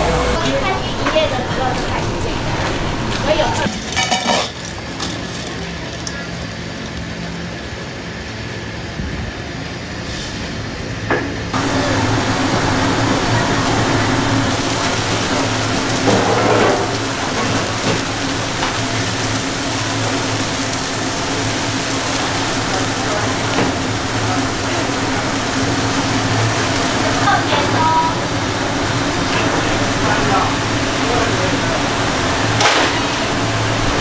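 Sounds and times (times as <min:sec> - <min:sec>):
machine hum with low drone: 0:00.0 - 0:34.0.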